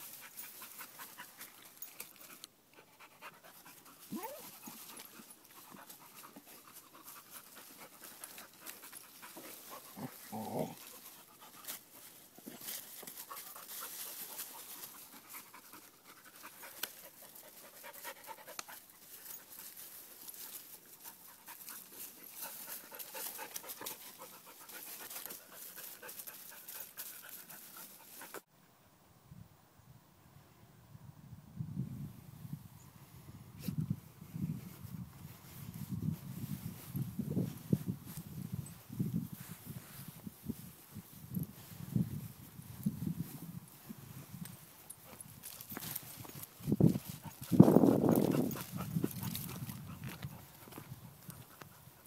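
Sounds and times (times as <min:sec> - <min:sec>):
dog panting: 0:21.1 - 0:28.4, 0:47.2 - 0:50.6.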